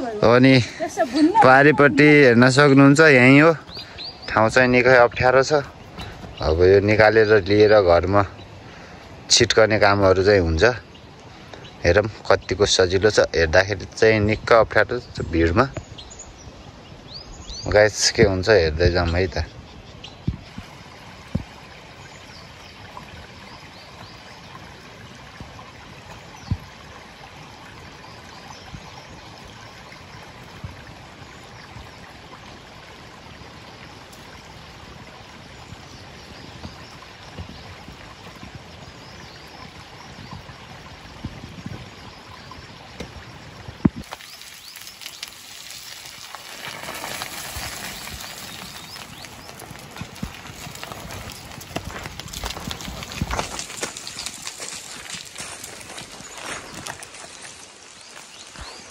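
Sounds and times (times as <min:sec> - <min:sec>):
running water rushing: 0:00.0 - 0:15.7, 0:16.4 - 0:58.9
footsteps on loose stones: 0:05.6 - 0:06.6, 0:43.8 - 0:58.9.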